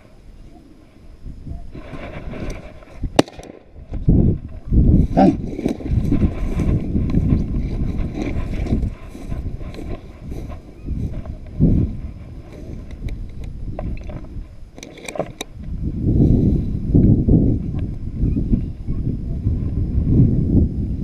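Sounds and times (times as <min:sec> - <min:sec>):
wind on microphone: 0:00.0 - 0:21.0
footsteps through dry grass: 0:04.2 - 0:12.9.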